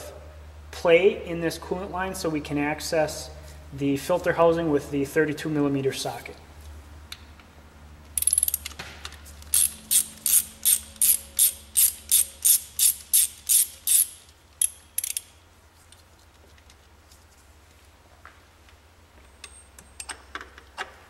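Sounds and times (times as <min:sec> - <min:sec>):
hand ratchet clicking: 0:08.2 - 0:08.8, 0:09.4 - 0:15.4.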